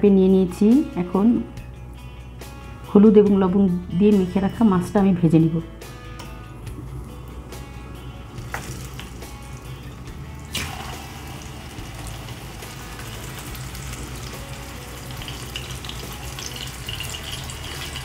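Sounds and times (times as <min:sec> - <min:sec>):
fish frying in hot oil: 0:10.5 - 0:18.0.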